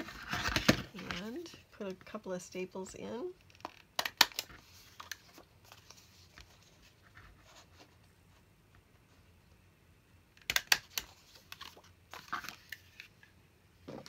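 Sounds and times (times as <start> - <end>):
paper rustling: 4.5 - 8.4.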